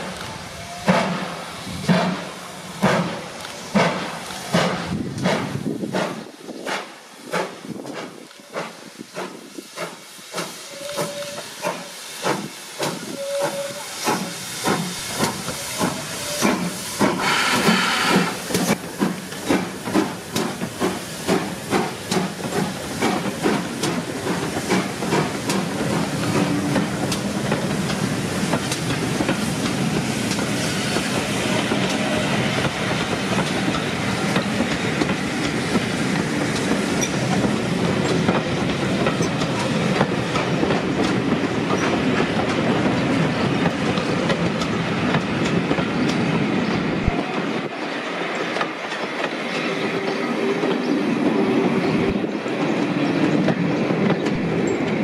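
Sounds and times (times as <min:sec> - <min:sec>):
steam locomotive exhaust beats: 0:00.0 - 0:47.8
train coaches rumbling: 0:00.0 - 0:55.0.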